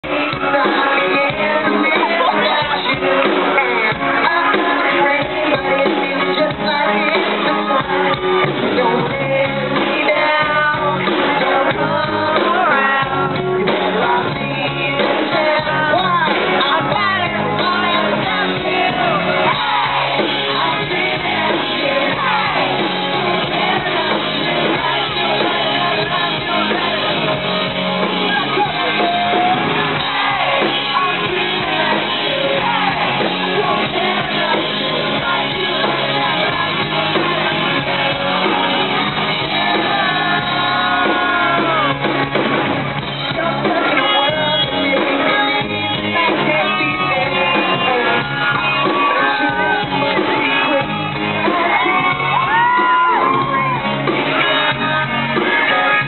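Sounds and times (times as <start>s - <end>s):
audience shouting and yelling: 0.0s - 56.0s
lead singer: 0.0s - 56.0s
live rock band: 0.0s - 56.0s.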